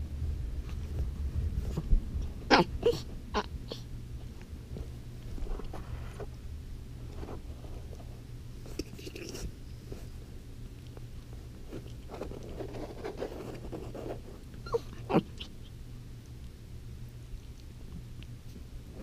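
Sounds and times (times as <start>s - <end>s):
steady low hum: 0.0s - 19.0s
puppy yipping and grumbling: 2.5s - 3.9s, 14.6s - 15.7s.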